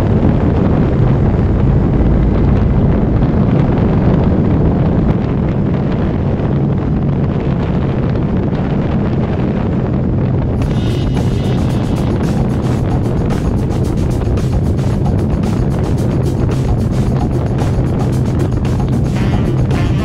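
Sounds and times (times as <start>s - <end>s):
wind rushing over microphone: 0.0s - 20.0s
motorcycle engine running: 10.5s - 20.0s.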